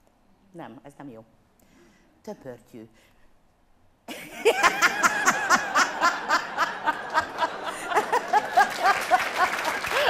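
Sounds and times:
woman laughing heartily: 0:04.1 - 0:10.0.

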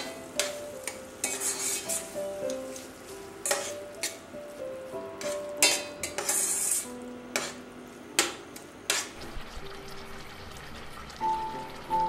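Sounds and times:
metal spoon scraping steel pan: 0:01.2 - 0:02.2, 0:03.4 - 0:04.2, 0:05.2 - 0:07.6.

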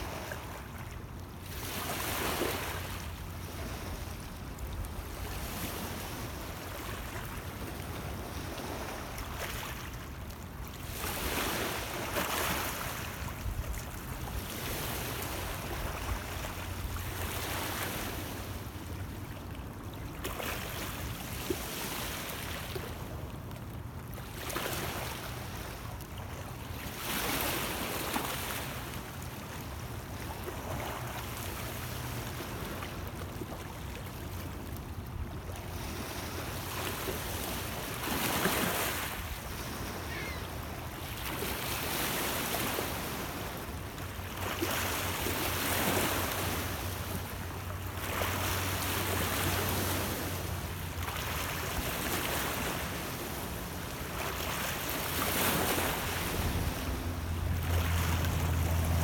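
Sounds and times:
waves lapping on stony shore: 0:00.0 - 0:59.0.

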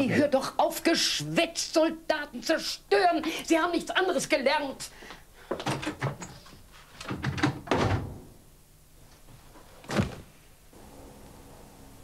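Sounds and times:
knocks and thuds: 0:07.1 - 0:08.3.

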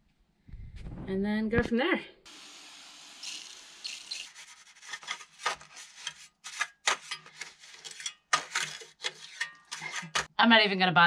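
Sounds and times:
pump sprayer hissing: 0:02.3 - 0:04.3
trowel scraping render: 0:03.3 - 0:10.3.

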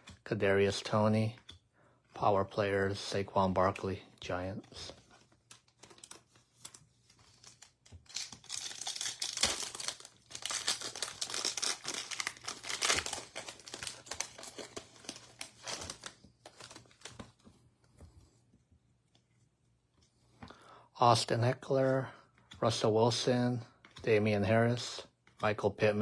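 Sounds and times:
foil wrapper tearing and crinkling: 0:05.8 - 0:17.3.

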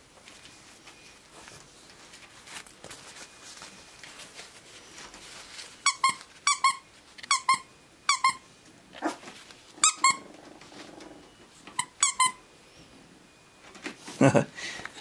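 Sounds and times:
squeaky dog toy squeaks: 0:05.8 - 0:08.5, 0:09.8 - 0:10.2, 0:11.8 - 0:12.4.

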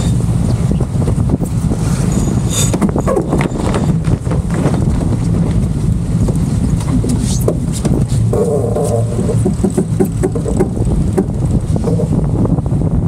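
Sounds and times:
wind rumbling on microphone: 0:00.0 - 0:13.0
short knocks and clicks: 0:06.8 - 0:11.5.

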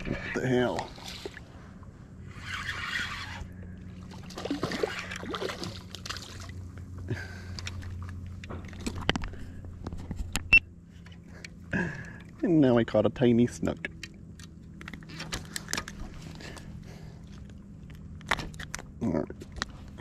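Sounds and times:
water splashing and sloshing: 0:00.0 - 0:12.5.

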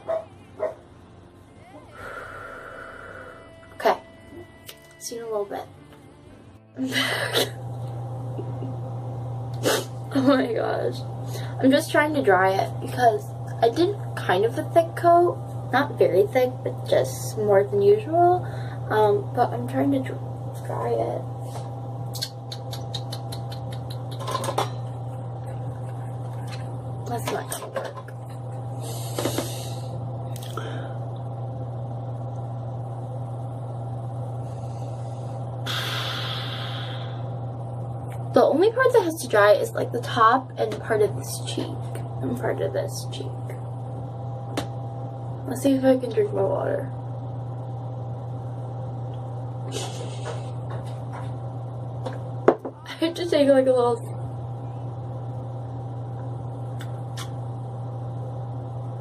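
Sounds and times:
steady low hum: 0:00.0 - 0:59.0
small electric motor humming: 0:28.0 - 0:31.3.

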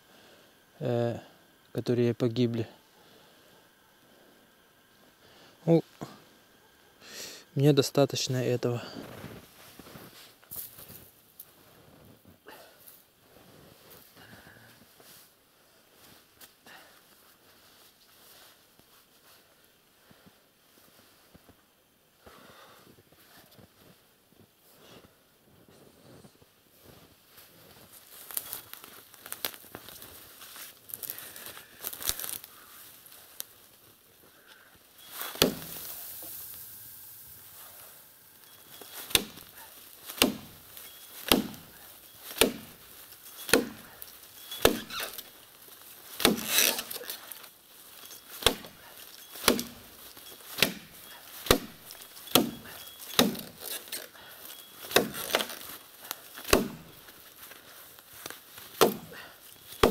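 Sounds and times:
rustling: 0:25.6 - 0:59.9
axe chopping tree trunk: 0:35.2 - 0:36.6, 0:38.8 - 0:42.8, 0:43.4 - 0:45.3, 0:46.1 - 0:47.0, 0:48.3 - 0:53.9, 0:54.8 - 0:55.7, 0:56.4 - 0:57.0, 0:58.6 - 0:59.2.

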